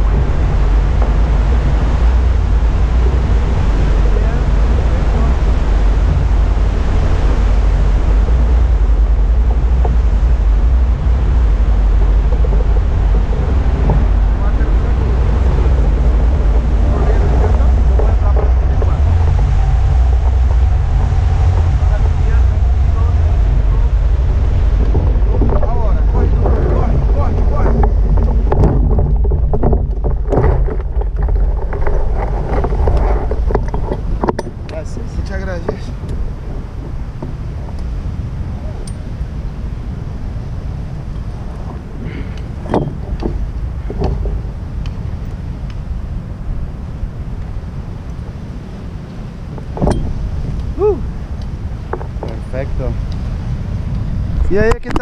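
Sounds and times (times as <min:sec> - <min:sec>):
wind buffeting microphone: 0:00.0 - 0:55.0
knocks and rattles: 0:08.2 - 0:38.2, 0:41.2 - 0:44.7, 0:49.5 - 0:50.7, 0:51.8 - 0:53.0.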